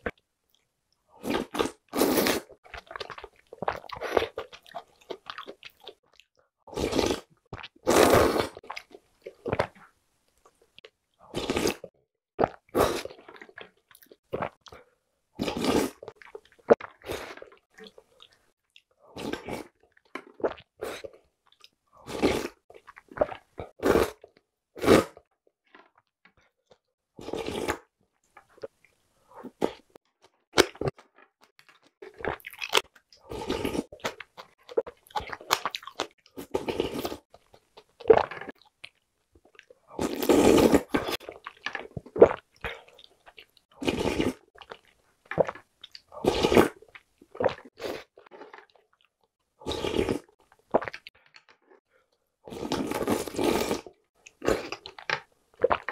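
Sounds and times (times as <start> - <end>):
slurping noodle soup: 1.2 - 5.4, 6.7 - 9.7, 11.2 - 11.9, 12.5 - 13.6, 15.4 - 18.4, 19.1 - 19.8, 22.0 - 22.6, 23.2 - 25.3, 27.2 - 27.9, 32.1 - 38.6, 39.8 - 44.8, 45.4 - 48.7, 49.6 - 51.1, 52.5 - 55.9.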